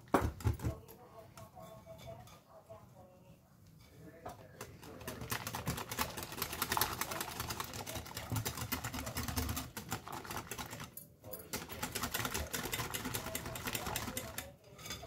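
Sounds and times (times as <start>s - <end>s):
whisk clicking against glass bowl: 4.7s - 14.5s.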